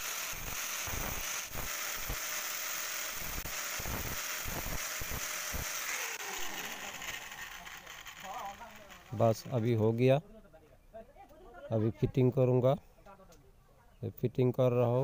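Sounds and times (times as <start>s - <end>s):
angle grinder grinding metal: 0.0s - 10.0s.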